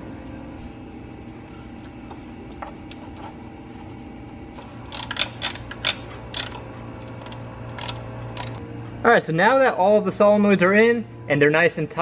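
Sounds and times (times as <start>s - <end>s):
steady low hum: 0.0s - 12.0s
hand ratchet clicking: 4.8s - 6.6s, 7.2s - 8.6s.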